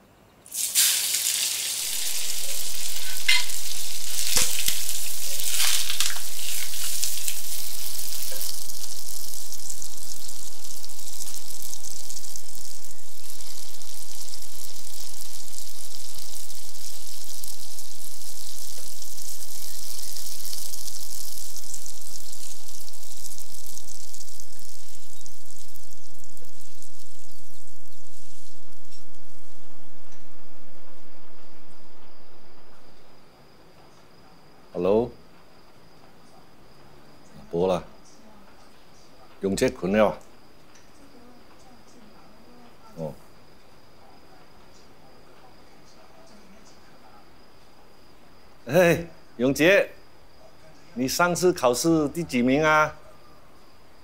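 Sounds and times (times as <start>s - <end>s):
fish sizzling in hot oil: 0.4s - 30.0s.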